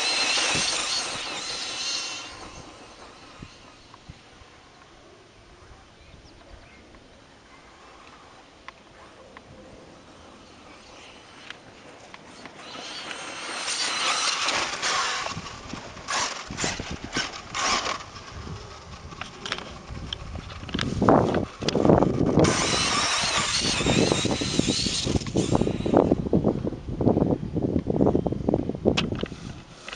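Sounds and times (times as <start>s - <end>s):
electric motor whine: 0.0s - 4.3s, 9.9s - 26.3s
tyres scrabbling on loose dirt: 10.6s - 26.0s.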